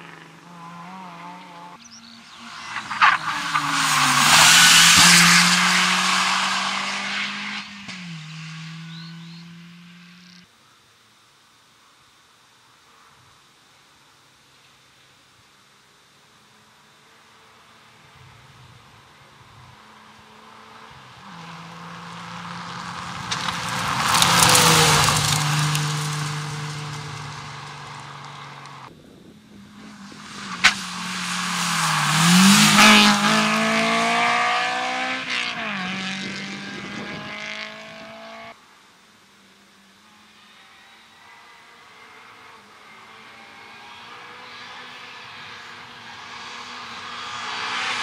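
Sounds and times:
rally car engine passing: 0:00.0 - 0:10.4, 0:18.6 - 0:28.9, 0:29.5 - 0:38.6, 0:40.4 - 0:48.0
tyres on gravel: 0:02.0 - 0:08.2, 0:21.3 - 0:28.9, 0:29.7 - 0:34.2.

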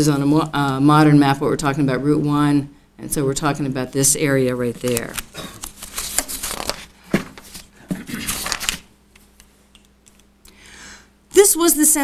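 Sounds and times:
rustling and clicking handling noises: 0:04.8 - 0:10.3.

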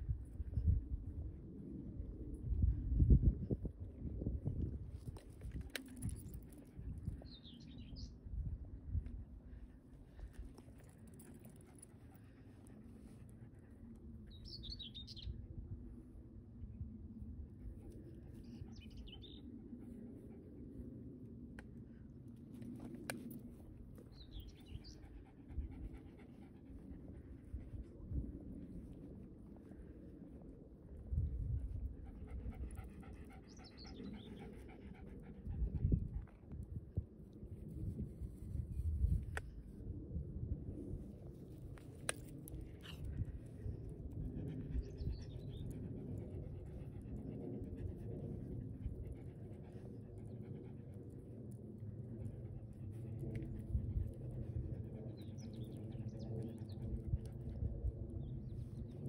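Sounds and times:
dog panting: 0:31.9 - 0:35.9.

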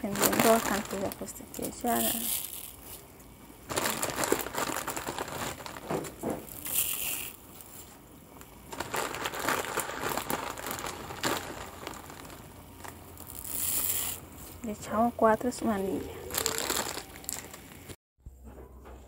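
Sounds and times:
dry noodles crunching: 0:00.0 - 0:03.0, 0:03.6 - 0:07.6, 0:08.4 - 0:14.2, 0:16.1 - 0:18.0.

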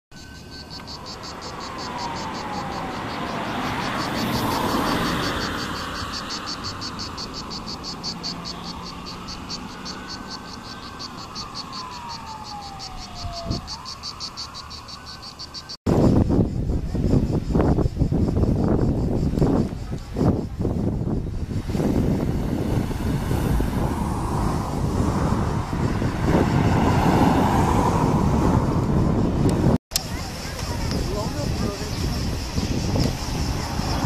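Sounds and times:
rushing noise: 0:00.1 - 0:19.3, 0:20.2 - 0:30.4
insects chirping: 0:00.1 - 0:34.0
siren wailing: 0:00.2 - 0:15.8.

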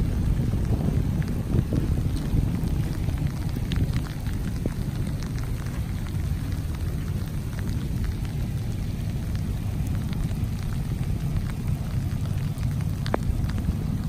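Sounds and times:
runoff water rushing over road: 0:00.0 - 0:14.0
wind rumbling on microphone: 0:00.0 - 0:14.0
small ticks: 0:01.2 - 0:14.0.

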